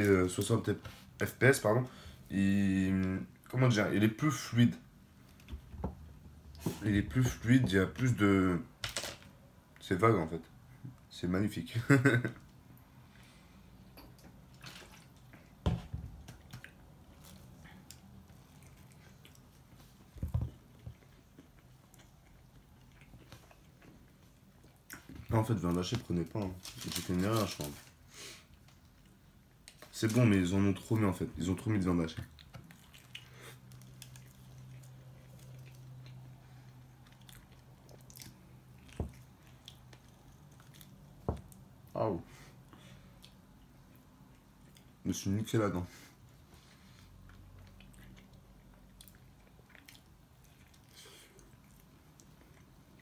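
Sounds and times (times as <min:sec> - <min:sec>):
person chewing: 0:16.3 - 0:25.3, 0:32.2 - 0:41.7, 0:46.9 - 0:53.0.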